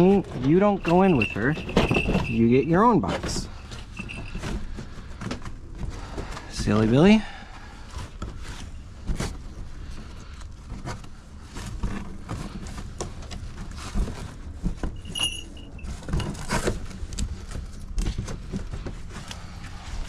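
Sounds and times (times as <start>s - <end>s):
boxes and gear knocking: 0.0s - 7.2s, 11.6s - 19.8s.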